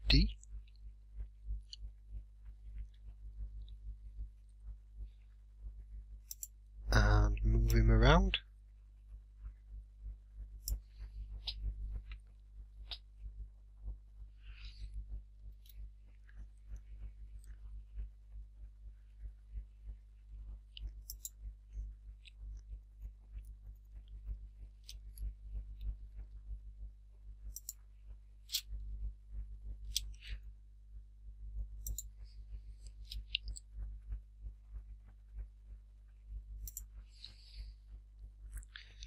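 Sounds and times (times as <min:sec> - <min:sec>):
steady low hum: 0:00.0 - 0:39.0
mouse and keyboard clicking: 0:06.2 - 0:06.6, 0:20.7 - 0:21.4, 0:27.5 - 0:27.8, 0:29.8 - 0:30.4, 0:31.8 - 0:32.2, 0:32.8 - 0:33.9, 0:36.6 - 0:37.0.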